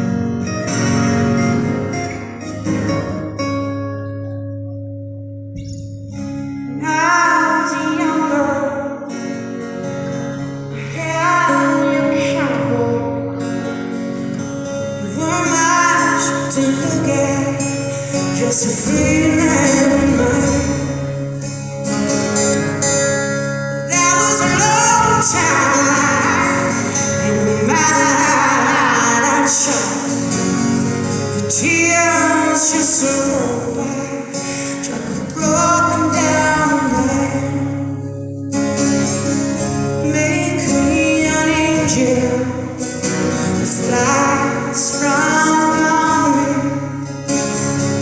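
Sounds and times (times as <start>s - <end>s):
acoustic guitar strumming: 0.0s - 48.0s
woman singing: 6.7s - 9.2s, 10.7s - 13.5s, 15.0s - 21.1s, 23.8s - 30.3s, 31.4s - 38.0s, 40.0s - 47.1s.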